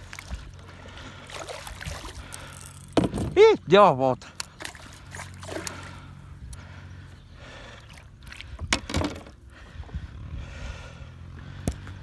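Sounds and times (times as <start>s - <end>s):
fish thrashing in water: 0.0s - 2.5s, 4.5s - 6.0s.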